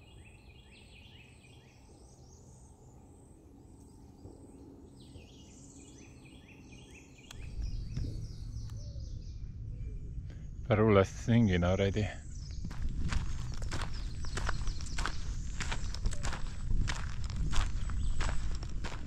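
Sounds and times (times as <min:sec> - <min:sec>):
bird song of high notes: 0:00.0 - 0:19.0
low rumble: 0:07.3 - 0:19.0.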